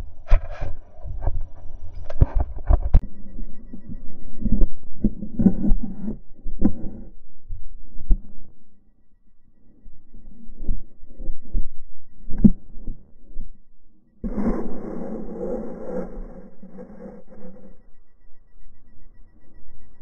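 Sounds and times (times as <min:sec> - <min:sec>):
muffled thumps and knocks: 0:00.2 - 0:03.1.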